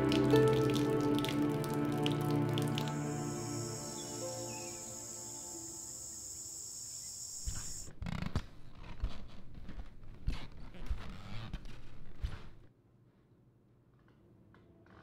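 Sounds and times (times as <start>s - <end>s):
insects chirring: 2.4s - 7.9s.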